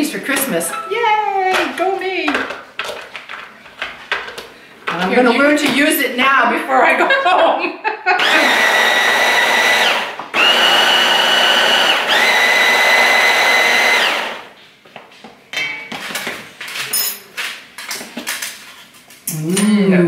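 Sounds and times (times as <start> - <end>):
stick blender motor whining: 8.2 - 14.6.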